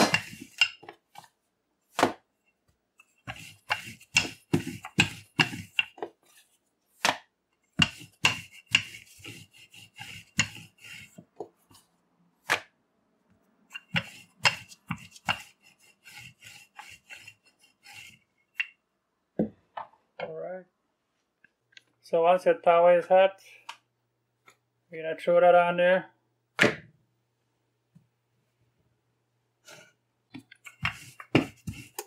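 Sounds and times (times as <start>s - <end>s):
rolling pin knocking and rubbing: 0.0s - 12.7s, 13.7s - 18.8s, 29.7s - 32.0s.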